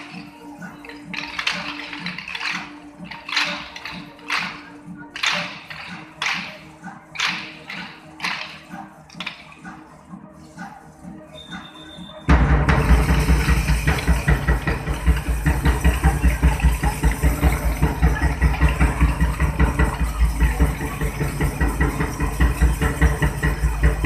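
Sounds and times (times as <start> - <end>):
dumbbells striking together: 1.1 - 8.6
steady drum beat: 12.3 - 24.0.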